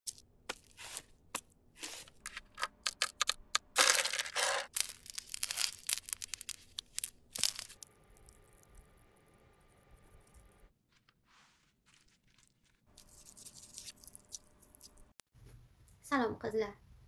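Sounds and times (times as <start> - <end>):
small objects crackling clicks: 2.4 - 9.0.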